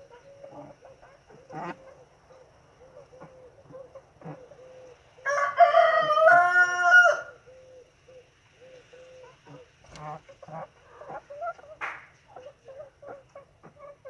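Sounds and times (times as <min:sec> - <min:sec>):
rooster crowing: 0:05.2 - 0:07.5.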